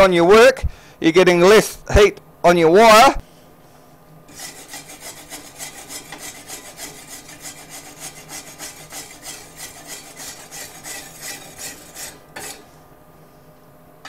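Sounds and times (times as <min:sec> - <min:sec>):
steel bar scraping steel plate: 0:04.3 - 0:12.8.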